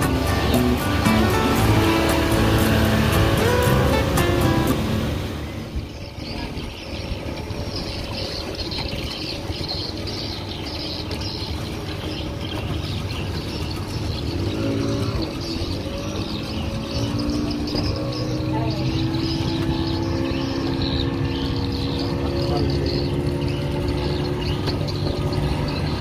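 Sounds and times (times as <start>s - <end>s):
pitched hum: 0.0s - 11.1s
boat engines rumbling: 0.0s - 26.0s
water churning: 0.0s - 26.0s.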